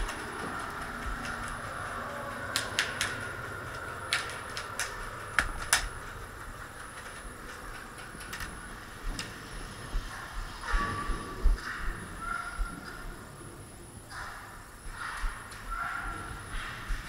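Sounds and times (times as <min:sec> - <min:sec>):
sharp clicks and knocks: 0:00.0 - 0:12.1
steady background hiss: 0:00.0 - 0:17.0.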